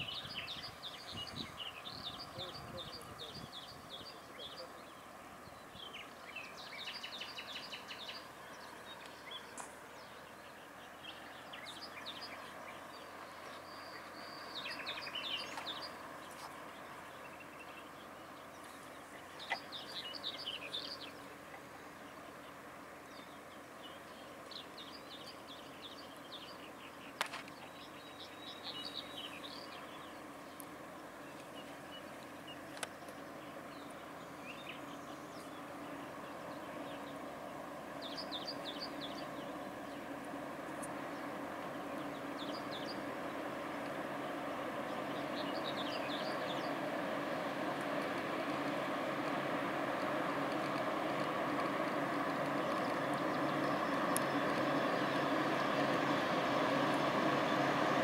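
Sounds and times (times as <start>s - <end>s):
songbirds chirping: 0.0s - 58.0s
distant freight train rumble: 27.7s - 58.0s.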